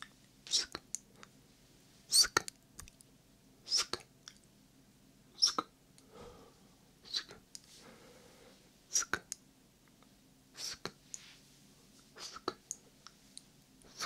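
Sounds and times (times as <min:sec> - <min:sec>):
whispered hissing mouth sounds: 0:00.5 - 0:00.9, 0:03.7 - 0:04.1, 0:07.0 - 0:07.4, 0:08.9 - 0:09.3, 0:10.6 - 0:11.0, 0:12.2 - 0:12.6.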